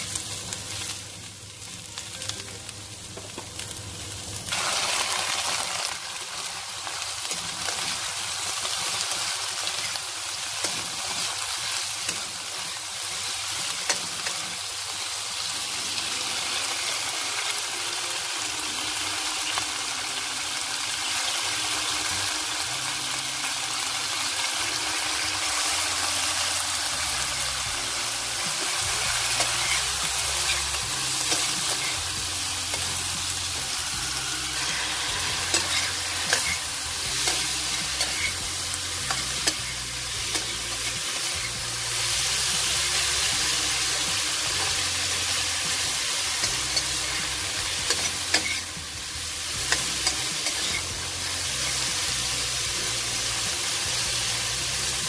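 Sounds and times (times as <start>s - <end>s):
vegetables sizzling in oil: 0.0s - 55.0s
metal spatula scraping wok: 28.3s - 48.8s, 49.4s - 52.0s.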